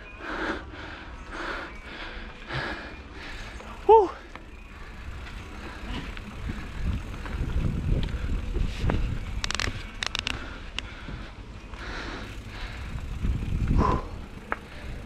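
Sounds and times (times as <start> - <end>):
bike tyres on dirt: 1.1 - 15.0
bike clicks and rattles: 1.5 - 15.0
wind on microphone: 6.0 - 10.3, 12.8 - 15.0.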